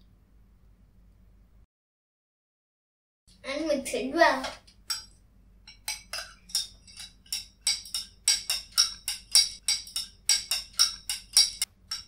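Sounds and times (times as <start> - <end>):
spoon clinking against glass: 4.9 - 12.0.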